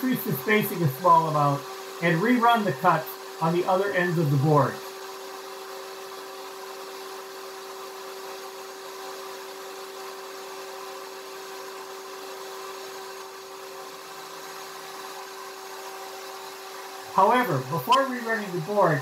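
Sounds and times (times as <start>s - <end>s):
steady low hum: 16.8s - 19.0s.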